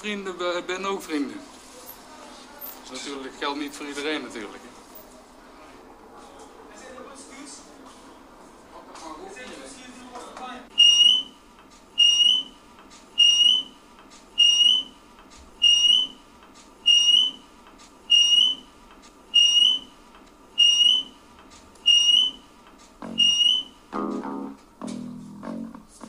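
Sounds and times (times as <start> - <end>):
high-pitched rising chirp: 10.8 - 11.2, 18.1 - 18.6, 20.6 - 21.1, 21.9 - 22.4, 23.0 - 23.7.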